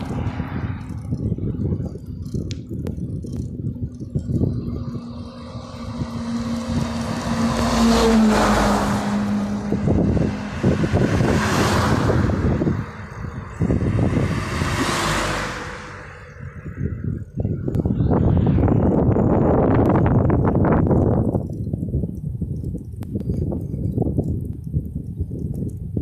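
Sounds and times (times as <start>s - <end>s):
cars whooshing past: 0.0s - 1.9s, 4.1s - 20.0s
truck passing: 0.0s - 21.6s
wind buffeting microphone: 0.0s - 26.0s.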